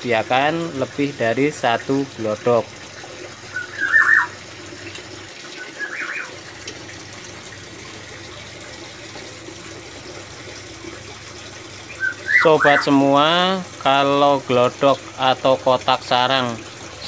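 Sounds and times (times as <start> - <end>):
bird chirp: 3.6 - 4.3, 5.6 - 6.3, 11.9 - 12.9.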